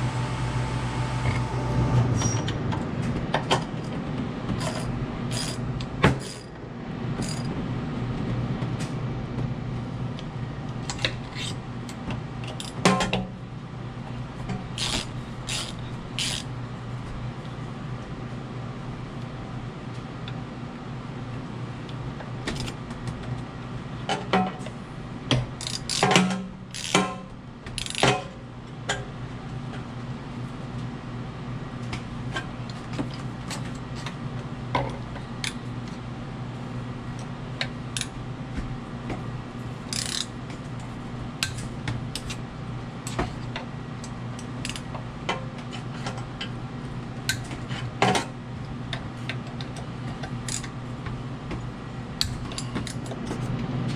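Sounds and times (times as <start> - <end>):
steady low hum: 0.0 - 53.9
metal tools clinking: 4.6 - 5.6
ratchet wrench clicking: 4.6 - 5.6, 14.8 - 16.5, 25.6 - 26.1, 26.7 - 27.0, 27.8 - 28.1, 39.9 - 40.3, 44.6 - 44.8.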